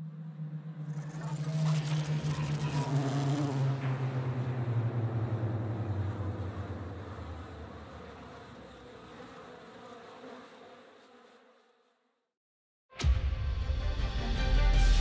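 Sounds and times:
bee buzzing: 0.0 - 4.3, 5.5 - 12.3
low hum: 0.0 - 8.8.

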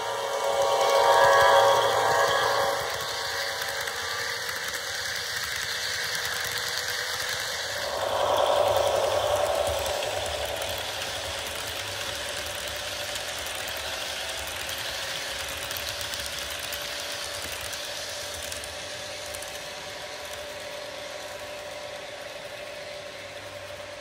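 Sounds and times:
steady hum: 0.0 - 13.7
model train wheels clicking: 0.0 - 24.0.

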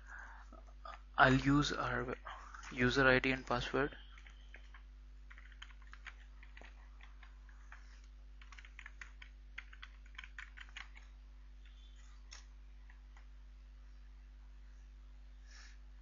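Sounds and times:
steady low hum: 0.0 - 16.0
computer keyboard typing: 1.9 - 13.3.

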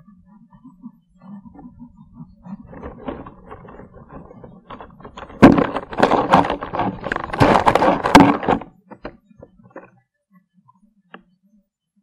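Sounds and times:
knocks and rubbing on microphone: 2.4 - 9.9.

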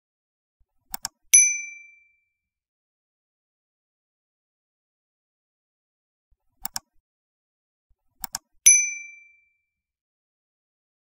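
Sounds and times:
mouse click sound effects: 0.9 - 1.2, 6.6 - 6.9, 8.2 - 8.5
bright bell ding: 8.7 - 9.5.

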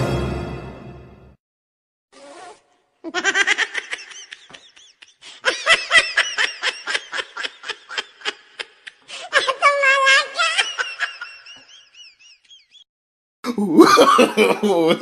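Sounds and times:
high-pitched laughter: 3.0 - 12.8.

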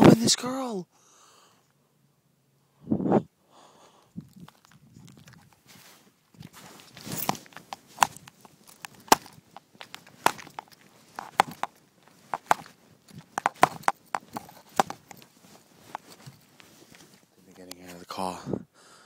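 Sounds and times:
phone handling clicks and knocks: 7.0 - 17.8.

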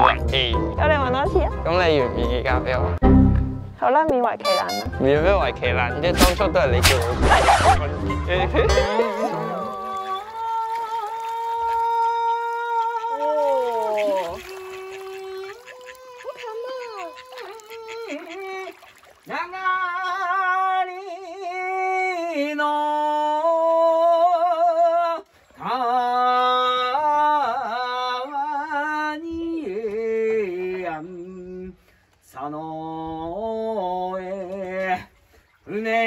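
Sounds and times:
man singing unaccompanied: 7.9 - 36.0.

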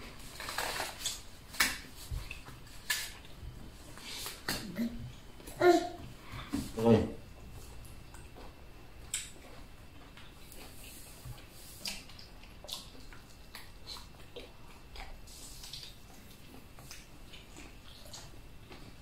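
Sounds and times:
people chewing and eating: 0.0 - 19.0
wet smacks and small clicks: 9.1 - 9.4.

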